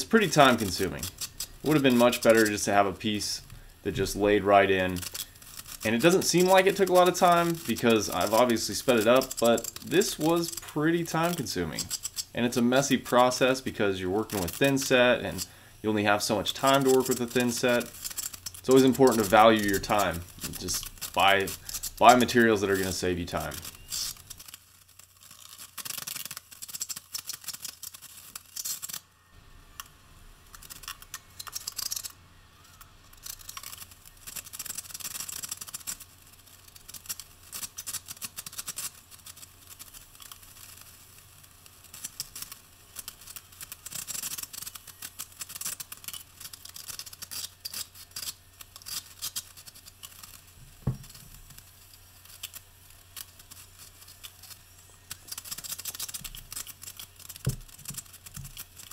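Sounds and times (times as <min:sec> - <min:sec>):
trowel scraping mortar: 0:00.0 - 0:24.6.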